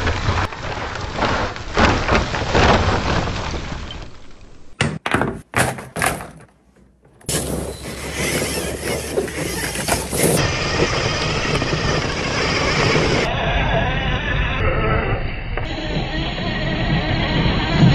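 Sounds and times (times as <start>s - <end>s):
sharp knocks: 4.8s - 6.5s
rc truck running noise: 7.2s - 17.9s.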